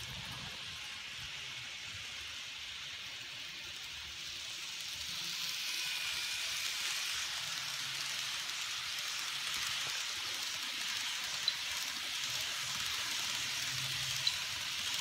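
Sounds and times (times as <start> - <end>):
model train wheels hissing on rail: 0.0 - 15.0.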